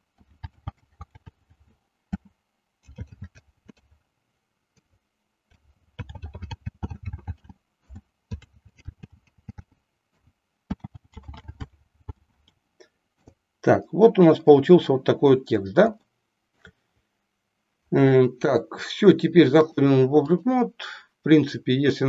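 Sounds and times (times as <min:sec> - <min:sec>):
computer keyboard typing: 0:00.2 - 0:04.0, 0:05.5 - 0:12.6.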